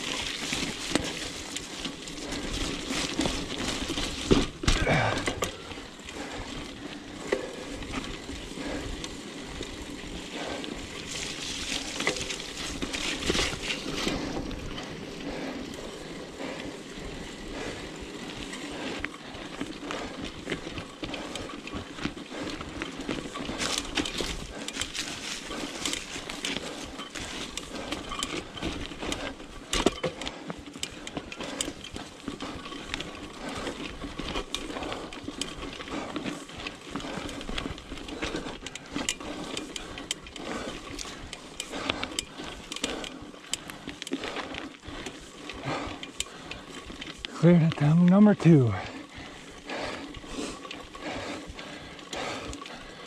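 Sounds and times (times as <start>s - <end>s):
bike chain and frame rattling: 0.0s - 53.0s
bike tyre rumble on dirt: 0.0s - 53.0s.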